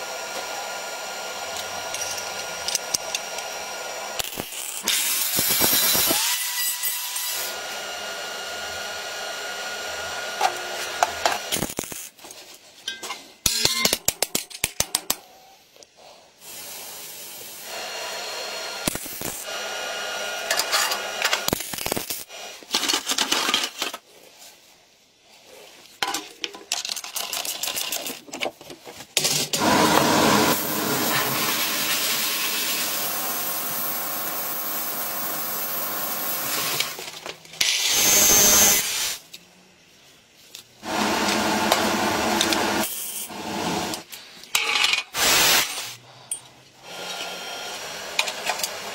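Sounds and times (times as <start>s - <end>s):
angle grinder on steel: 1.1s - 12.1s, 17.4s - 22.3s, 29.6s - 37.0s
welding sizzling: 4.2s - 7.5s, 11.5s - 12.2s, 18.8s - 19.5s, 21.5s - 22.3s.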